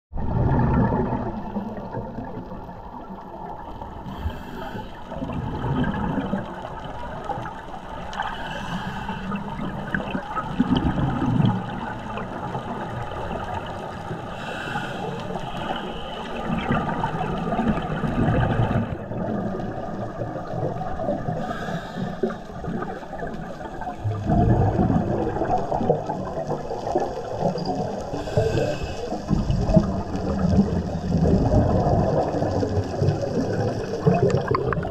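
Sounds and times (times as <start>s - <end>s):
muffled water noise: 0.1s - 34.9s
diver exhaling bubbles: 0.2s - 2.8s, 4.0s - 6.7s, 8.2s - 13.6s, 14.2s - 34.9s
regulator inhalation hiss: 4.1s - 4.9s, 8.2s - 9.4s, 14.3s - 15.9s, 21.4s - 22.4s, 28.1s - 29.3s.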